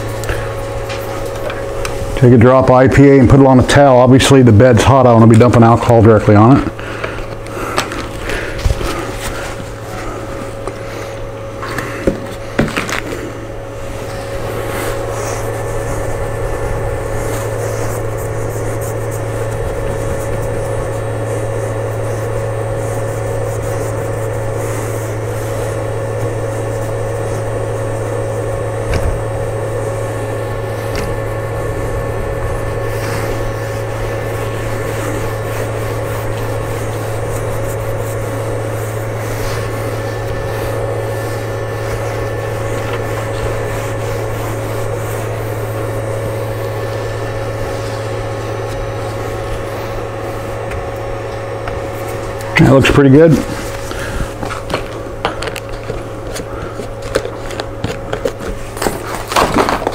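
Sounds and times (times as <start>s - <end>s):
cloth wiping printer bed: 0.0s - 59.4s
machine hum: 0.0s - 59.9s.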